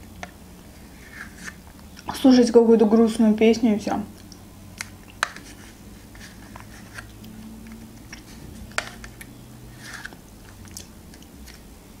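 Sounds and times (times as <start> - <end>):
spoon scraping plastic cup: 8.2 - 10.2.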